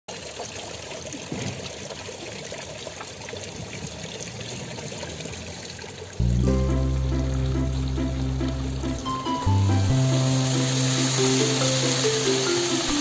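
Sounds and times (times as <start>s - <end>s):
fountain water splashing: 0.1s - 13.0s.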